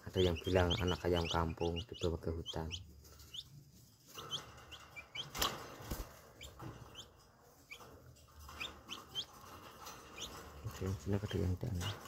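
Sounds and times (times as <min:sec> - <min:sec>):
chicks peeping: 0:00.0 - 0:12.0
wings fluttering: 0:03.3 - 0:12.0.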